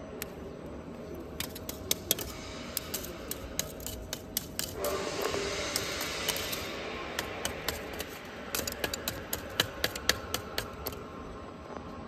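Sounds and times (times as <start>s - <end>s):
charcoal pieces clinking: 1.0s - 4.8s, 5.8s - 11.0s.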